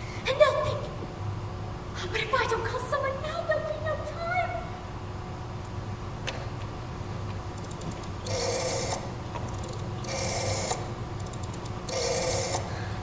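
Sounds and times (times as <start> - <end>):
mechanical buzzing bursts: 7.6 - 12.8.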